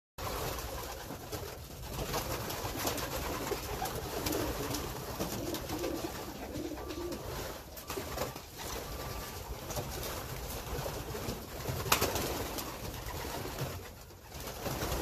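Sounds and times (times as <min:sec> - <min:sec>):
pigeons cooing: 0:02.3 - 0:09.8.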